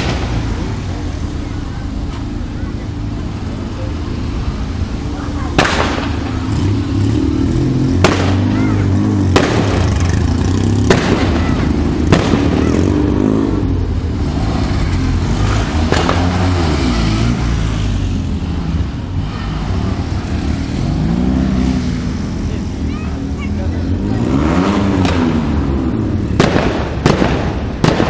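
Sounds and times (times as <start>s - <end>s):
car engines humming: 0.0s - 28.0s
sharp bangs: 5.5s - 7.0s, 7.8s - 13.2s, 14.8s - 17.2s, 24.7s - 28.0s.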